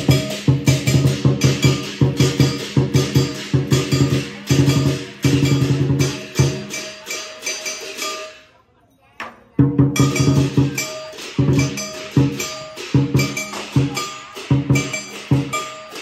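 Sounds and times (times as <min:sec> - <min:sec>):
big drum beating: 0:00.0 - 0:07.5, 0:09.6 - 0:16.0
gong: 0:00.0 - 0:08.4, 0:10.0 - 0:16.0
cymbals clashing: 0:00.0 - 0:08.6, 0:09.8 - 0:16.0.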